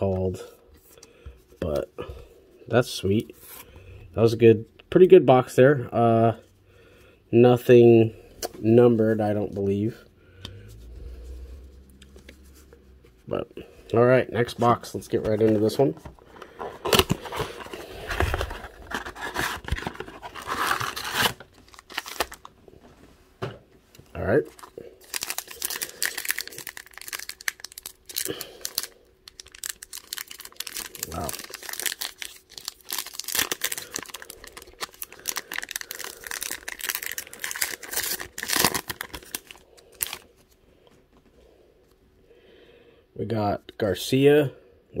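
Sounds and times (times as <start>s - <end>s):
card wrapper crinkling: 14.6s - 22.6s, 24.5s - 40.4s
packaging tearing and rustling: 15.2s - 22.5s, 24.5s - 40.3s.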